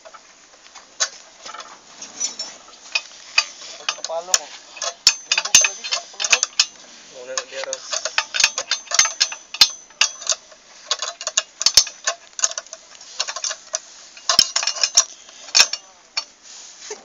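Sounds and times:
metallic clicks of hand tools: 0:02.3 - 0:06.8, 0:07.4 - 0:16.3.

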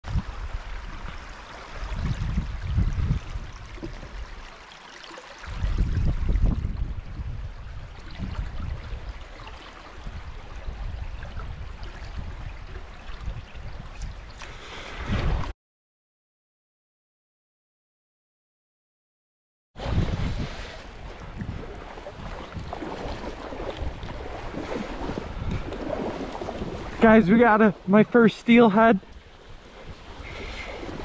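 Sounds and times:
creek water trickling over rocks: 0:00.1 - 0:14.7, 0:20.8 - 0:31.0.

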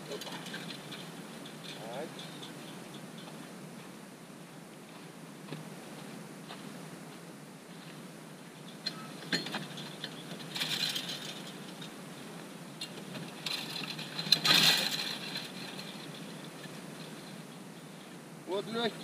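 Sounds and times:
metal jangling rattle: 0:08.8 - 0:11.9, 0:13.3 - 0:17.4.

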